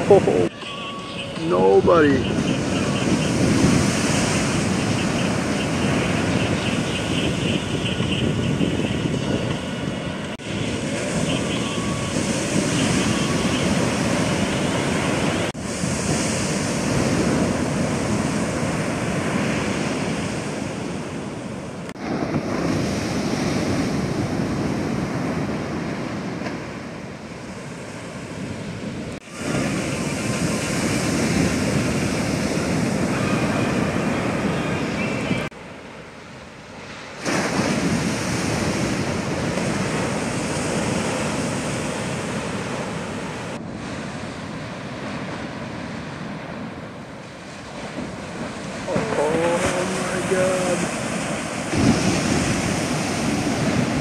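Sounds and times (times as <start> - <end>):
waves crashing: 0.0 - 54.0
whitewater rushing: 1.3 - 6.4, 48.1 - 54.0.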